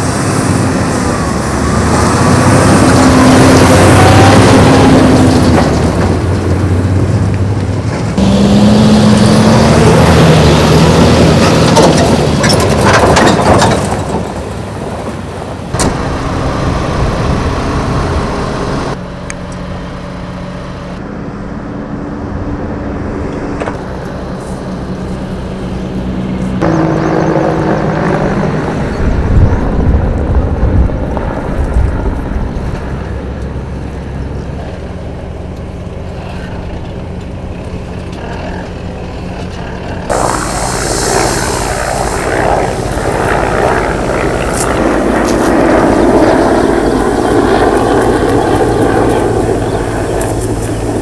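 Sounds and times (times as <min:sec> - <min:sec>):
diesel truck driving past: 0:00.0 - 0:12.8, 0:13.7 - 0:45.1
truck engine idling: 0:35.2 - 0:44.9.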